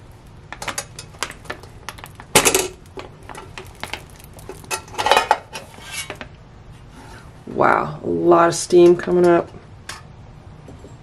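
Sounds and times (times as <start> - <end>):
metal pan clinking and rattling: 2.4 - 6.2
metal scrapes: 4.8 - 6.2.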